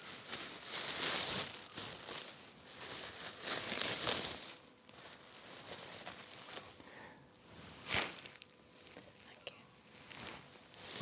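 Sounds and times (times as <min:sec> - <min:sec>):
sandwich wrapping crinkling: 0:00.0 - 0:06.8.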